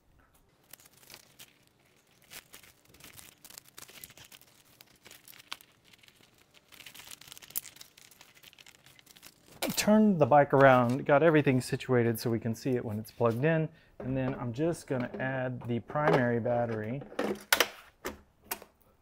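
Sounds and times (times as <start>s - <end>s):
cable and strap rustling: 0.4s - 11.6s.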